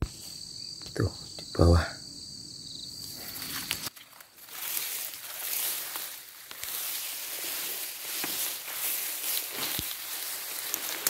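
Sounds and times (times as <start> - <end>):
high insect drone: 0.0 - 11.0
footsteps rustling through dry leaves: 3.2 - 11.0.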